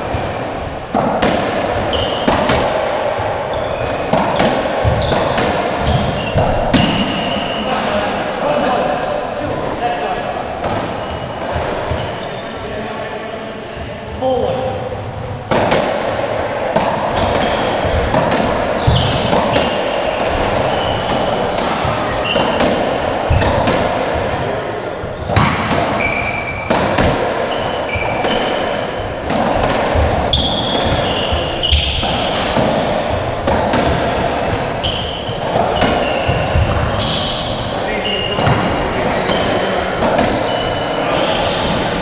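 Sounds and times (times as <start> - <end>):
ball hitting rackets and walls: 0.0 - 8.9, 9.6 - 12.3, 15.0 - 42.0
shoes squeaking on wooden floor: 1.8 - 2.4, 3.5 - 7.8, 18.8 - 22.6, 26.0 - 26.7, 27.5 - 28.8, 29.5 - 33.2, 33.8 - 42.0.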